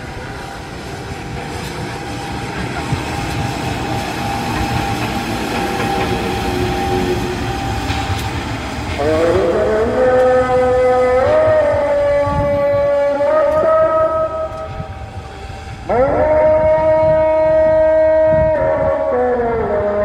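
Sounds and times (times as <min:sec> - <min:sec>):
diesel locomotive engine revving: 0:00.0 - 0:20.0.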